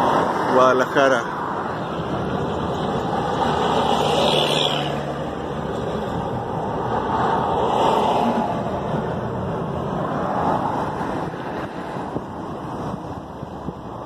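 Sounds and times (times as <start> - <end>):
car road noise from inside: 1.1 - 14.0.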